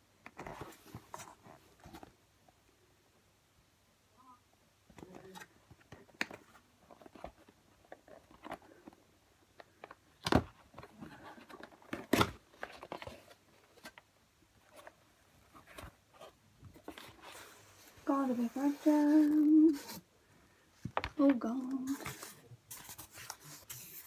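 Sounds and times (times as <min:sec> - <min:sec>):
cardboard box scrapes and rustles: 0:15.6 - 0:20.0.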